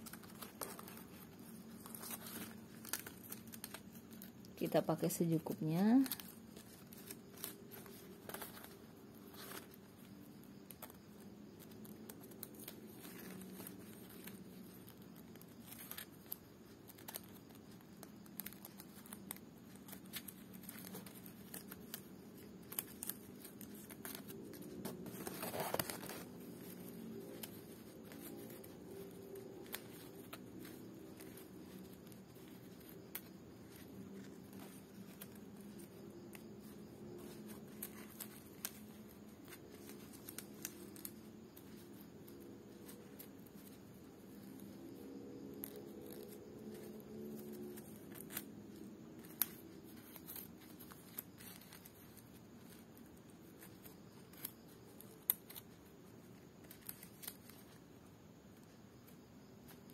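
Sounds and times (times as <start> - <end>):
dry palm leaves rustling: 0.0 - 11.2, 11.8 - 43.3.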